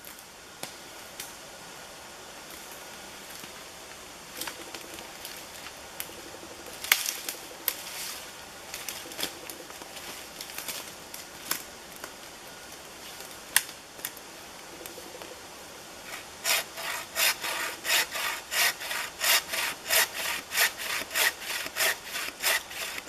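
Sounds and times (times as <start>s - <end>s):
forest litter rustling: 6.7s - 15.3s
dry twigs cracking: 10.4s - 12.2s.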